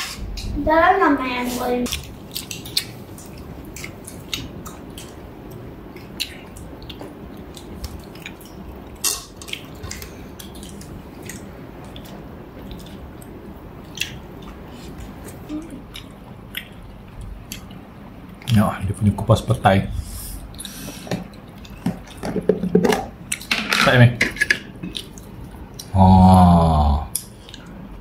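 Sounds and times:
wet chewing and mouth sounds: 1.9s - 18.6s, 24.8s - 25.9s.

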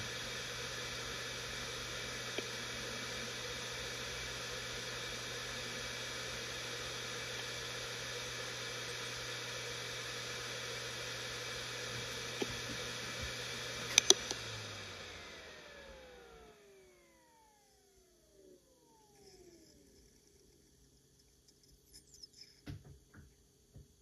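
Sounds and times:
hard drive spinning with hiss and hum: 0.0s - 24.0s
sharp clicks: 13.9s - 14.4s.

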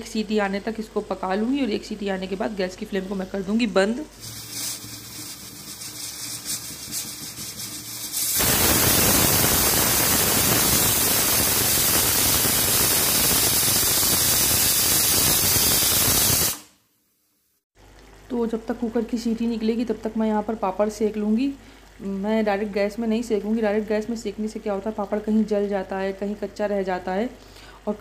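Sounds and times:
pressure cooker steam hissing: 4.1s - 16.7s.

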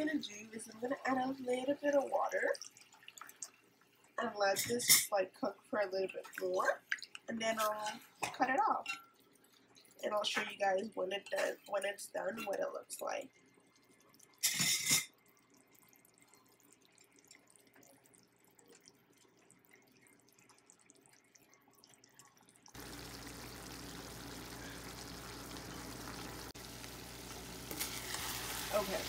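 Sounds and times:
sauce bubbling and sizzling: 0.0s - 4.2s, 8.0s - 11.2s, 13.2s - 29.0s.

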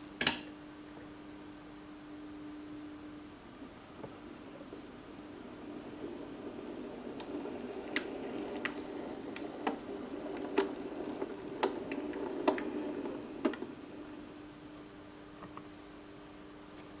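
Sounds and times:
model locomotive motor humming: 4.9s - 14.3s
wheels clicking on track: 5.0s - 14.3s.

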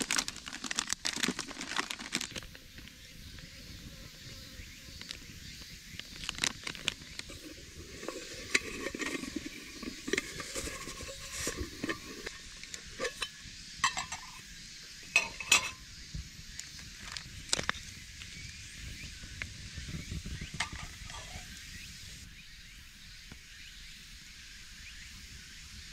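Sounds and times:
coffee packet rustling: 0.0s - 2.6s, 6.0s - 14.3s
mug rubbing and knocking in pouch: 6.3s - 14.4s, 20.5s - 21.5s
metal mug clinks: 13.0s - 14.4s, 15.1s - 15.8s.

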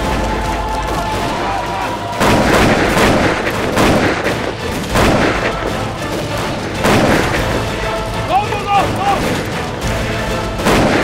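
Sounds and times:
continuous battle din: 0.0s - 11.0s
gunfire and blasts: 2.1s - 8.2s, 8.8s - 9.8s, 10.4s - 11.0s.

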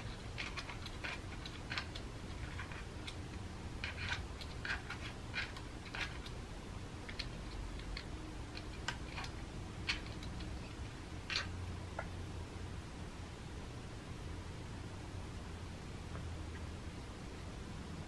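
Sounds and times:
cat crunching kibble: 0.0s - 11.6s.

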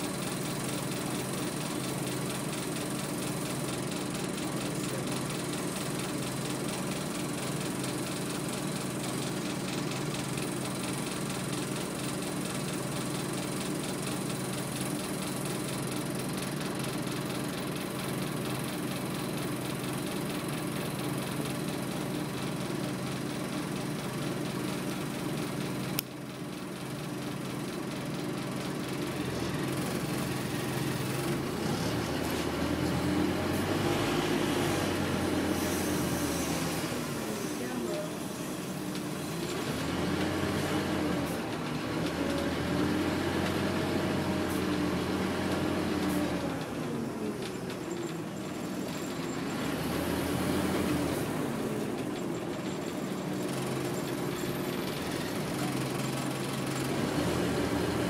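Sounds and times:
bus diesel engine idling: 0.0s - 58.0s
sharp click inside bus: 23.6s - 26.5s, 38.9s - 49.3s, 51.8s - 57.7s.

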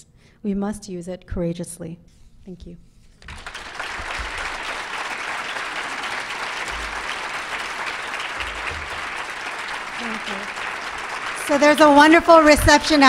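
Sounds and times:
audience applauding: 3.2s - 13.0s.

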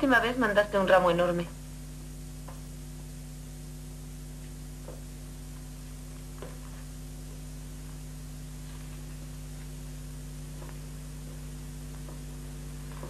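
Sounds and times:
electrical hum with hiss: 0.0s - 13.0s.

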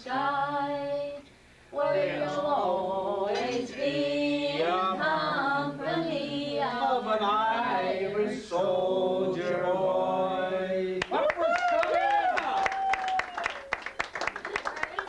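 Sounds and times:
unaccompanied voices singing: 0.0s - 11.1s.

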